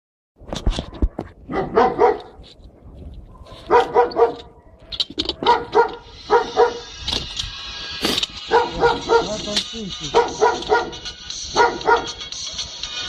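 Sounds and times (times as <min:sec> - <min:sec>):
dog barking: 0:01.5 - 0:02.4, 0:03.3 - 0:06.9, 0:08.4 - 0:09.5, 0:10.1 - 0:12.7
music: 0:05.7 - 0:13.0.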